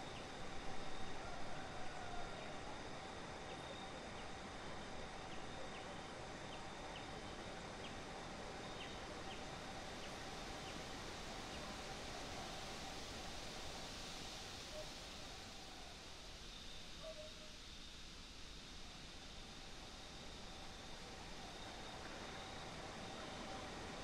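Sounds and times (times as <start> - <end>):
faint steady tones: 0.0 - 24.0
steady hiss: 0.0 - 24.0.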